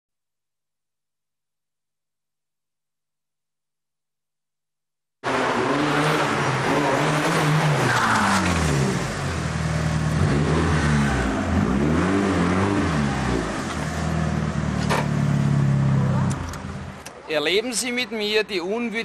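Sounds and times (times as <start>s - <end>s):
car engine revving: 5.2s - 17.0s.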